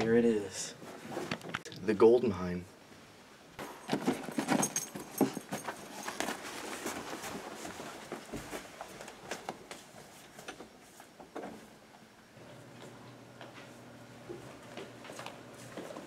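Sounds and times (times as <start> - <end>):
tub clattering and rustling: 3.6 - 10.5
footsteps on hard floor: 5.2 - 10.0, 12.8 - 16.0.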